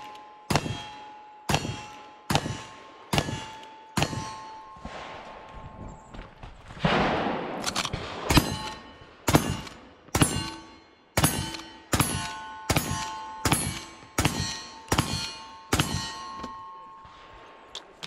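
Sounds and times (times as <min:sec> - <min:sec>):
rifle shots: 0:06.8 - 0:10.6
steel target clanging: 0:08.3 - 0:17.3.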